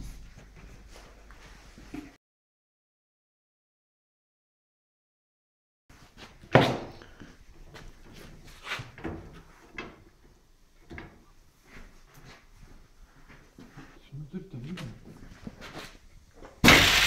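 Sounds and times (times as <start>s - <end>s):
loud sharp bang: 16.6s - 17.0s.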